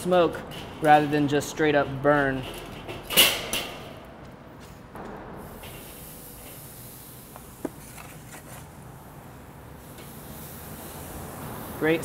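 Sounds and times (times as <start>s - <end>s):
chicken sizzling on a grill: 8.9s - 12.0s.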